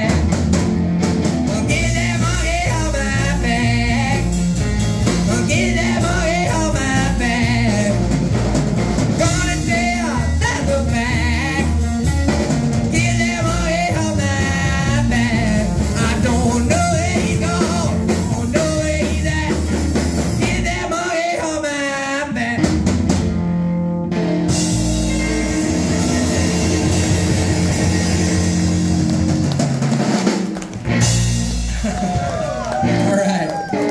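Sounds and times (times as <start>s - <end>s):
man singing with vibrato: 0.0s - 0.5s, 1.4s - 8.3s, 9.2s - 12.1s, 12.7s - 22.9s
hollow-body electric guitar: 0.0s - 20.9s, 22.5s - 33.9s
drum kit: 0.0s - 21.5s, 22.4s - 33.9s
upright bass: 0.0s - 33.9s.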